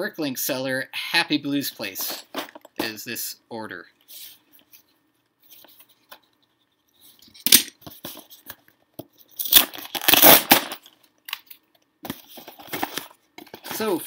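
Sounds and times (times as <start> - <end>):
cardboard tearing: 9.4 - 10.8.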